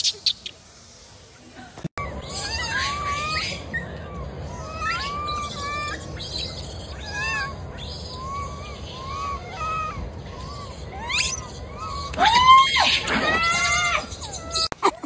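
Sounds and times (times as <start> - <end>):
baby monkey cooing and whimpering: 2.0 - 12.2, 12.9 - 14.7.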